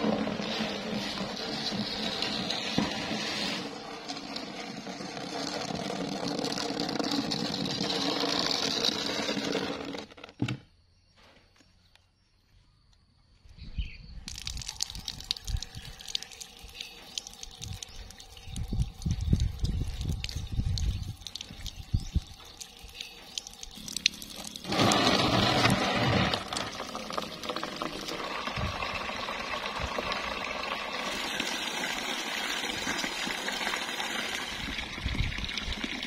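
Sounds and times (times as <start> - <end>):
plastic tub scraping on concrete: 0.0 - 10.7, 24.4 - 35.1.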